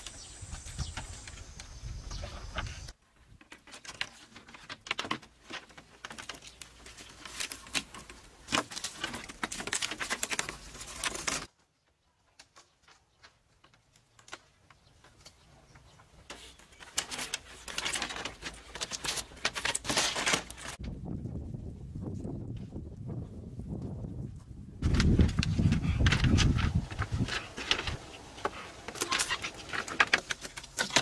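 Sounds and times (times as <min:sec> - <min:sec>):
bamboo poles clicking and knocking: 0:00.0 - 0:20.9, 0:24.8 - 0:31.0.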